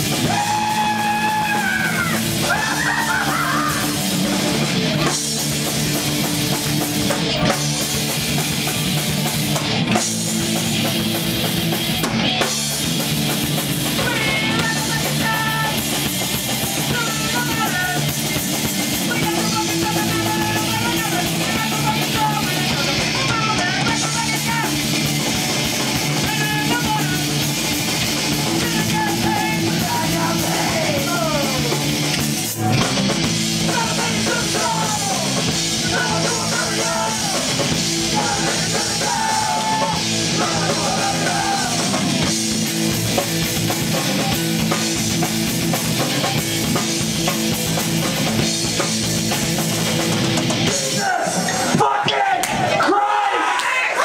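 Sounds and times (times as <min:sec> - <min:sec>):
live rock band playing: 0:00.0 - 0:51.9
person singing into a microphone: 0:14.0 - 0:15.8, 0:16.9 - 0:18.1, 0:19.1 - 0:24.8, 0:28.5 - 0:31.7, 0:33.6 - 0:42.0.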